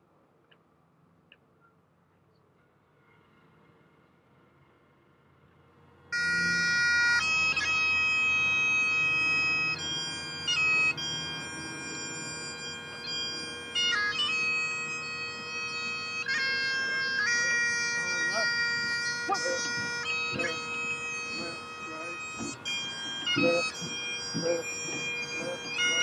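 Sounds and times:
bagpipe drones: 6.0 - 26.0
bagpipe chanter melody: 6.1 - 26.0.

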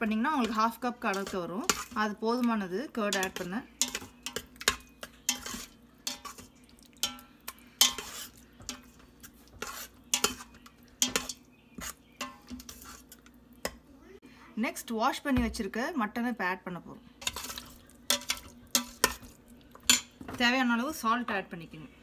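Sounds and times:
faint sizzle: 0.0 - 22.0
metal spoon scraping a pot: 0.3 - 2.1, 3.1 - 13.4, 17.2 - 20.1.

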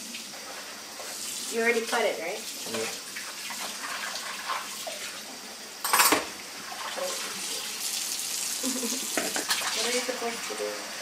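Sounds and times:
kitchenware clattering: 5.8 - 7.2, 8.7 - 10.0
tap running into sink: 9.0 - 10.0.

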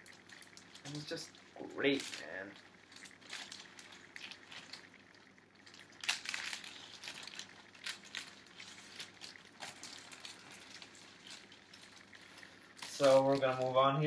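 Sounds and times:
record sleeves rustling and scraping: 5.9 - 14.0.

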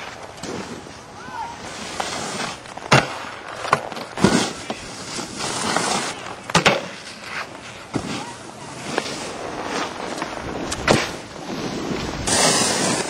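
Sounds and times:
snowboard scraping hiss: 0.0 - 3.5, 4.2 - 6.3, 7.0 - 13.0.

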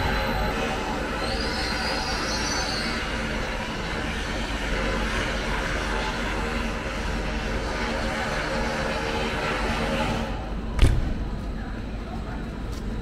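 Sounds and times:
high squeal: 0.0 - 3.7
train rumble: 0.0 - 13.0.

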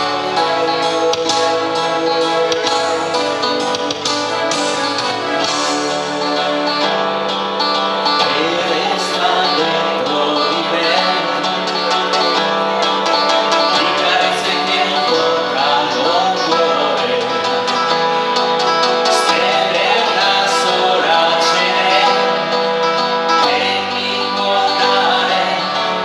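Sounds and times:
guitar accompaniment: 0.0 - 26.0
man singing: 8.1 - 12.4, 13.4 - 26.0.

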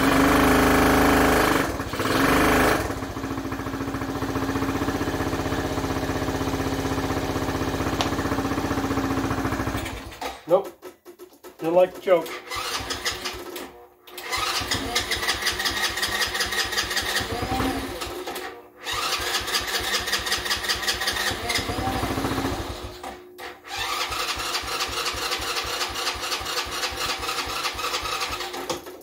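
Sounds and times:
electric starter cranking engine: 0.0 - 10.4, 12.1 - 29.0.

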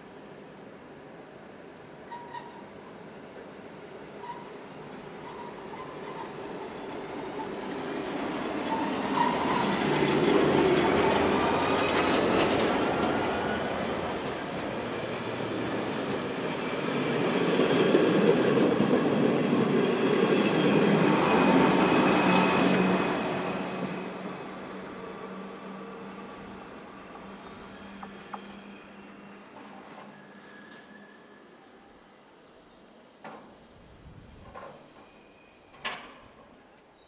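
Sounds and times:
train wheels on rails: 4.1 - 31.2, 33.2 - 37.0
high wheel squeal: 8.6 - 10.1.

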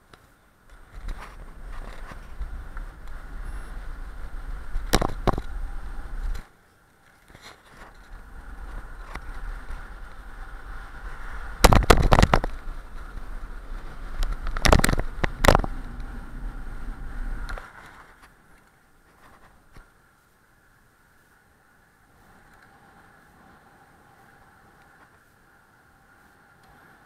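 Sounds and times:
wind rumbling on microphone: 0.0 - 27.0
bike rattling over bumps: 0.6 - 19.8.

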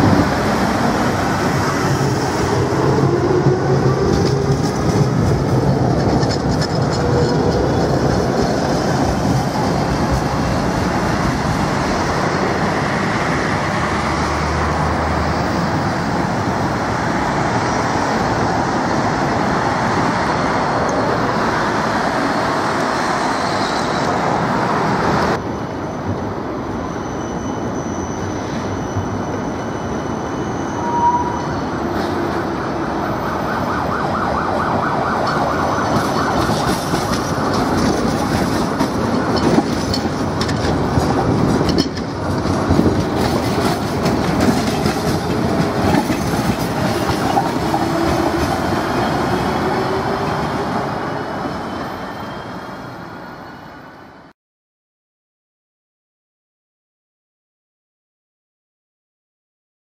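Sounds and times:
road traffic: 0.0 - 54.3
tram rumbling on rails: 0.0 - 54.3
wheels squealing: 26.6 - 32.4.

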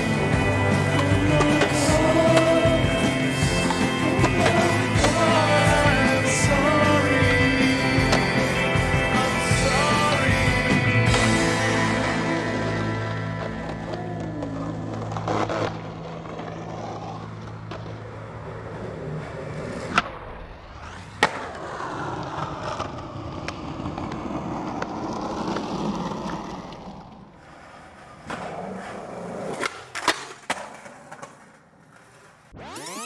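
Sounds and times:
skateboard wheels rolling on concrete: 0.0 - 33.0
skateboard clacking on ground: 27.7 - 32.4.

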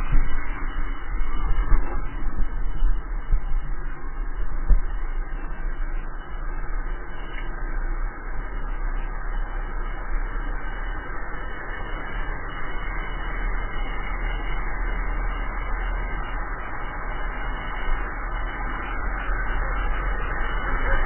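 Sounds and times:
wind on microphone: 0.0 - 13.0.

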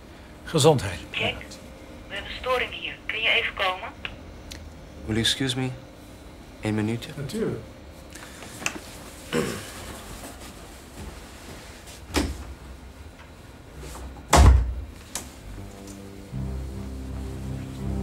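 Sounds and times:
soft background music: 15.4 - 18.0.

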